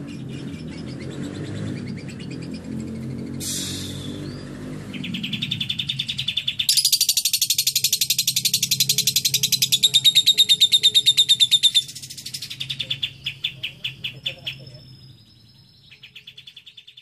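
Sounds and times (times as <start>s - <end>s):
lovebird chattering trill: 4.9s - 17.0s.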